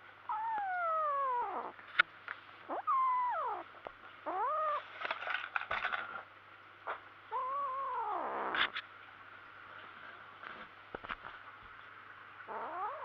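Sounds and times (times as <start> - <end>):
kitten yowling: 0.3 - 1.8, 2.7 - 4.9, 7.3 - 8.7, 12.5 - 13.0
rustling: 4.4 - 6.2.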